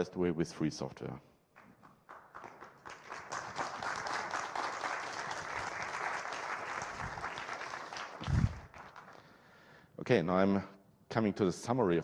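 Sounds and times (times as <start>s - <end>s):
audience applauding: 1.6s - 9.3s.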